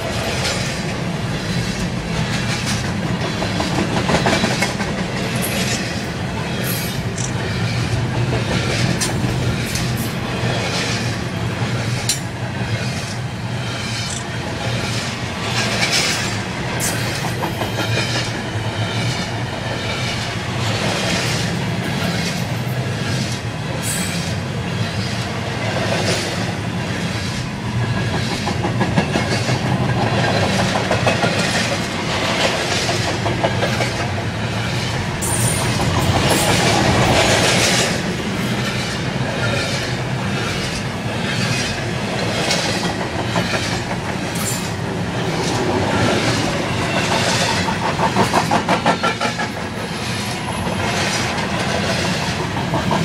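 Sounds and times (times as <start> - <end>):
freight train rumbling: 0.0 - 53.0
wheels clicking over rail joints: 34.8 - 53.0.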